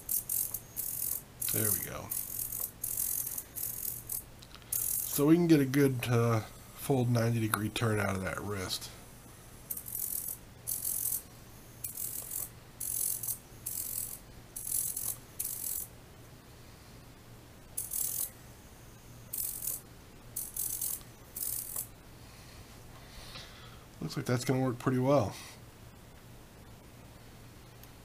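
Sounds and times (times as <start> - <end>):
servo whirring: 0.0 - 5.2, 9.7 - 15.9, 17.8 - 18.3, 20.4 - 21.9.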